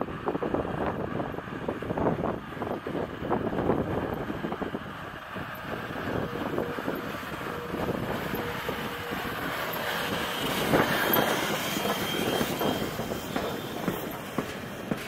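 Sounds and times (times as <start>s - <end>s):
steam locomotive clanking: 2.8s - 15.0s
wheel squeal: 6.1s - 15.0s.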